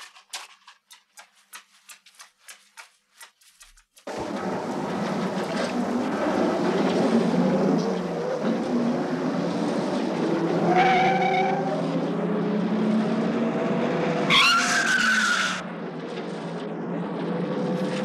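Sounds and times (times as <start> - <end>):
tyres screeching: 14.3 - 15.6.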